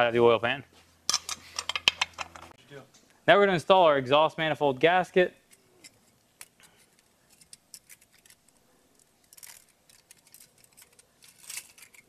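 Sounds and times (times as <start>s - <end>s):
metal gasket clicks and scrapes: 5.5s - 12.0s.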